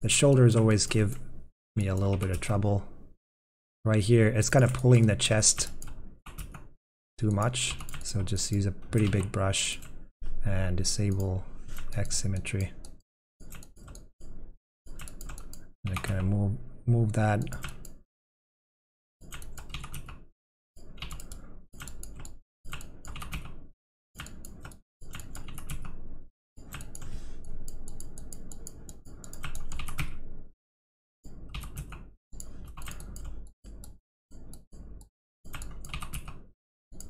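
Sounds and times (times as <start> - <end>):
keyboard typing: 9.0 - 9.9, 14.9 - 16.3, 21.0 - 23.6, 24.2 - 25.9, 26.6 - 30.2, 31.5 - 34.6, 35.5 - 36.4.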